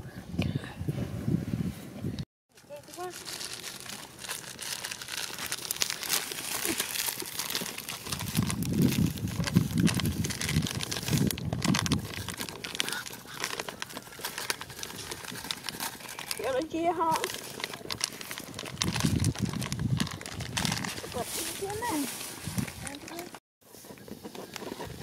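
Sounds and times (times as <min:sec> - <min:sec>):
plastic bag rustling: 0:02.5 - 0:25.0
low rumbling: 0:03.2 - 0:12.8, 0:17.2 - 0:21.3.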